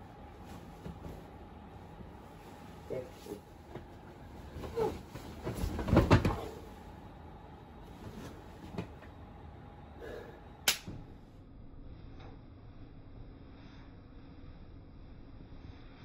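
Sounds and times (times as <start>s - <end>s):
fabric rustling: 0.3s - 6.8s
heavy dull thuds on mattress: 4.6s - 6.6s
sharp click: 10.7s - 10.9s.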